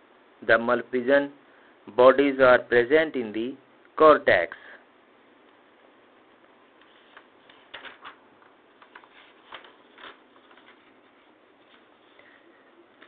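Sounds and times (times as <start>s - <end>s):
steady low hiss: 0.0s - 13.0s.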